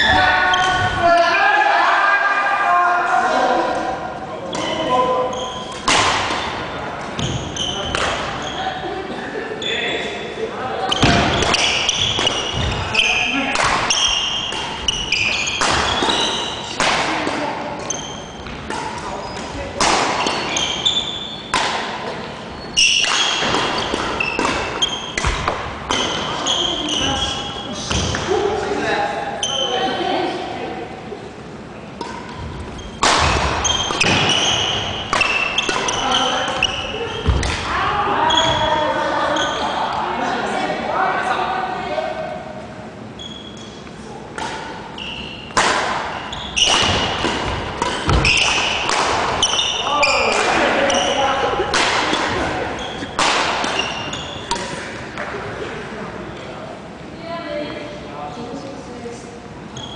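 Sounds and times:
sneakers squeaking on floor: 0.0 - 1.2, 4.5 - 8.8, 10.8 - 16.8, 17.7 - 28.3, 29.4 - 30.1, 32.0 - 37.6, 38.2 - 40.0, 43.1 - 54.9, 59.6 - 59.9
racket striking shuttlecock: 5.7 - 6.5, 13.5 - 17.4, 21.5 - 22.1, 32.0 - 37.7, 44.3 - 51.0, 51.7 - 52.4, 53.0 - 55.4
shoes squeaking on wooden floor: 7.1 - 8.6, 10.9 - 16.8, 20.2 - 21.5, 33.6 - 37.3, 44.9 - 51.6, 59.7 - 59.9.

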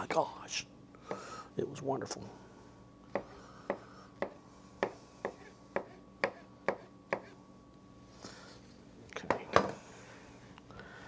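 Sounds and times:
knife chopping on cutting board: 3.1 - 7.3.

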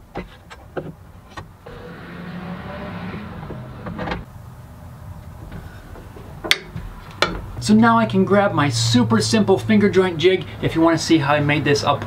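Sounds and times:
mechanical whir with low hum: 1.6 - 4.3.

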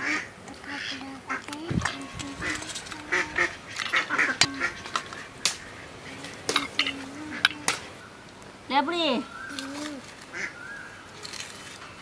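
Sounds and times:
low repeating call: 1.3 - 8.0.

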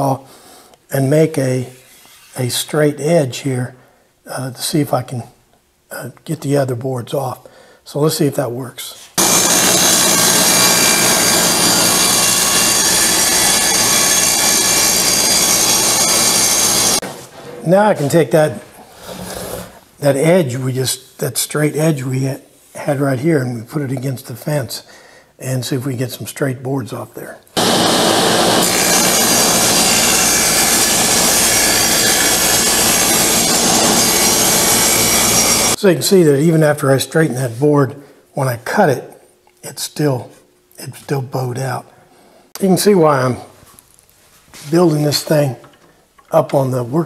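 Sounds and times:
table saw cutting wood: 9.2 - 17.0, 27.6 - 35.8.

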